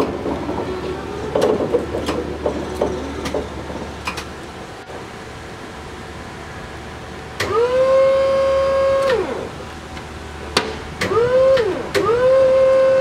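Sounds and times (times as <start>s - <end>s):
hydraulic pump motor whining: 7.4s - 13.0s.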